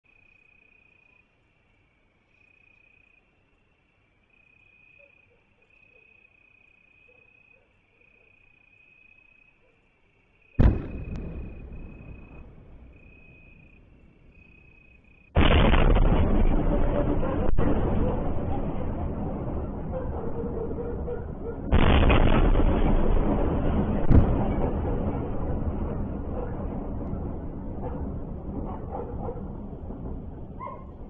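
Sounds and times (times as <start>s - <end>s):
crickets chirping: 0.1s - 15.4s
loud explosion rumbling: 10.6s - 13.1s, 15.4s - 31.0s.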